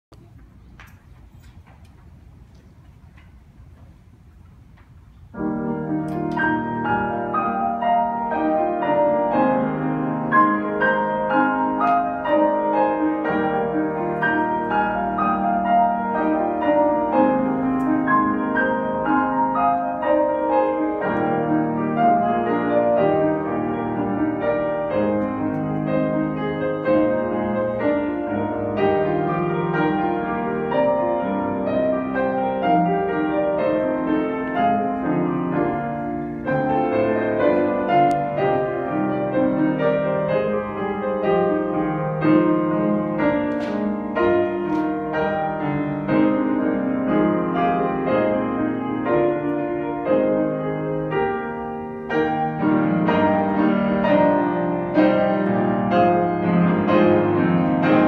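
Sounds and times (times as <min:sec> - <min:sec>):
piano duet: 0:00.0 - 0:58.0.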